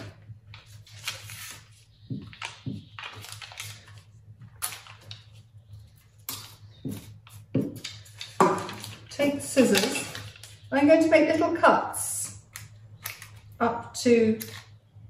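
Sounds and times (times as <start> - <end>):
foil crinkling: 0.6 - 5.5, 6.2 - 10.7.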